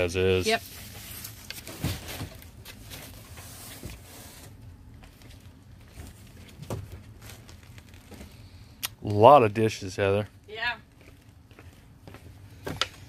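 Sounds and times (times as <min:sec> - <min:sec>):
plastic packaging rustling: 0:00.5 - 0:08.6.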